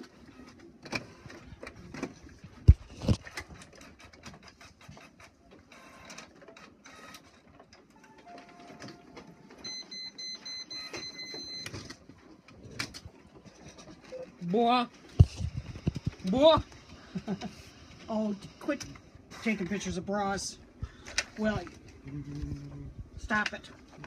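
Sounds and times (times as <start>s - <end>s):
high pulsing printer whine: 0.0s - 2.0s, 4.8s - 12.0s, 13.2s - 20.6s
printer clicks and feed noises: 0.0s - 14.2s.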